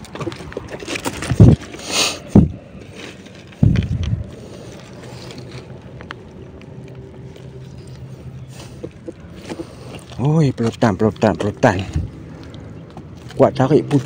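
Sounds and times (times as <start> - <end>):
microphone rumbling against cloth: 3.6 - 4.3.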